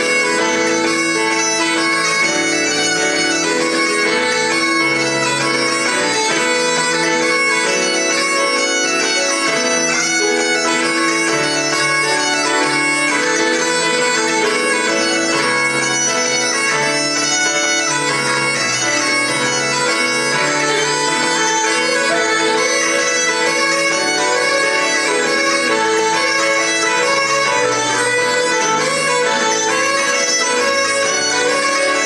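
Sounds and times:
bagpipes playing a tune: 0.0s - 32.0s
keyboard accompaniment: 0.0s - 32.0s.

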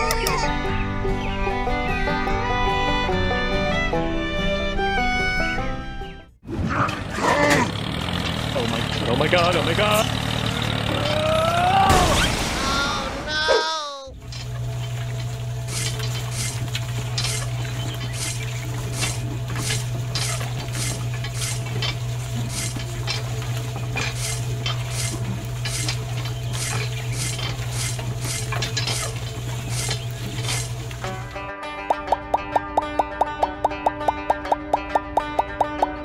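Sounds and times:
small electric motor humming: 14.1s - 31.3s
clicks and light rattles: 14.2s - 31.3s.

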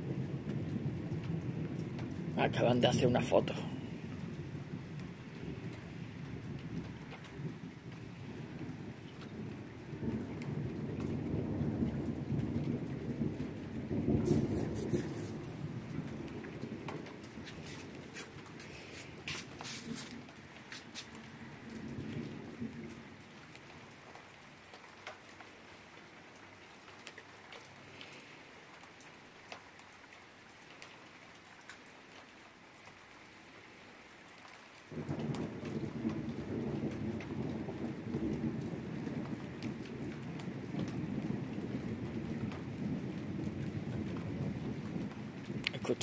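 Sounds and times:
thunder rumbling: 0.0s - 23.5s, 34.9s - 46.0s
rain falling: 0.0s - 46.0s.

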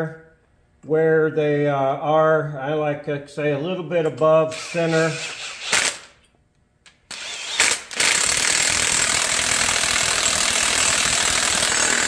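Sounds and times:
impact wrench hammering: 7.1s - 12.0s.

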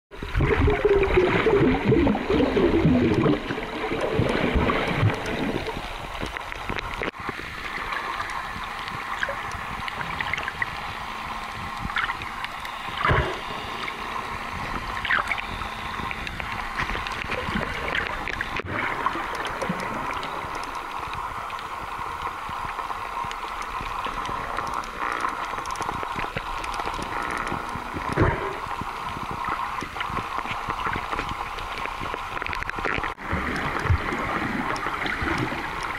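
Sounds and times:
water hissing and gurgling: 0.1s - 35.9s
clicks and pops: 14.7s - 21.7s.

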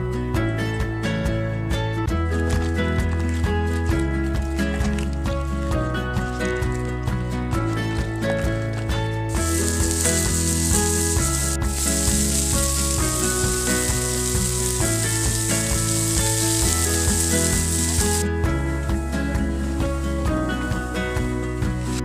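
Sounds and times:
background music: 0.0s - 22.0s
fish sizzling on grill plate: 9.3s - 18.2s.

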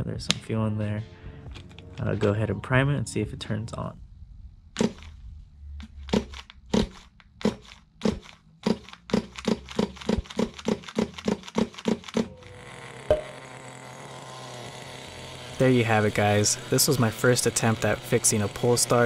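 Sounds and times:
small engine running: 5.8s - 19.0s
recoil starter pull strokes: 13.8s - 19.0s.

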